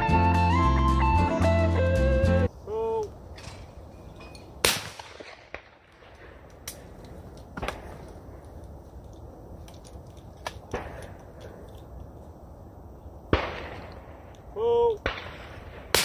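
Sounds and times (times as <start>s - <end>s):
shotgun shot: 4.6s - 6.4s, 13.3s - 14.0s, 15.0s - 16.0s
distant gunshots: 4.6s - 7.0s, 13.3s - 14.2s, 15.0s - 16.0s.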